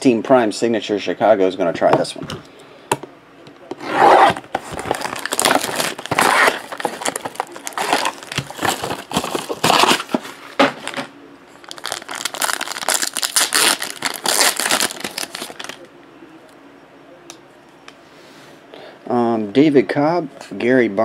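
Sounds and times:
plastic wrap crinkling and tearing: 4.0 - 11.0, 11.6 - 15.9.

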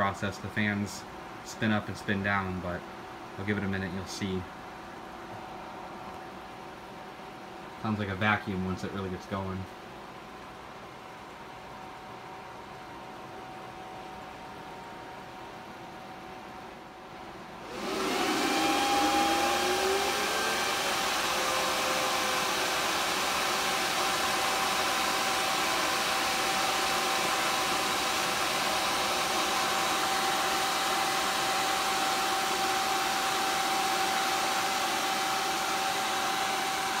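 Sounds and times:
cooling fans whining and rushing: 0.0 - 37.0.

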